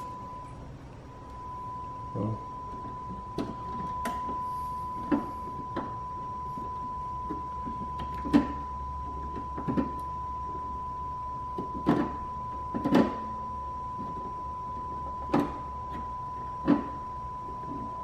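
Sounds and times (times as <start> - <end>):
high electronic tone: 0.0 - 18.0.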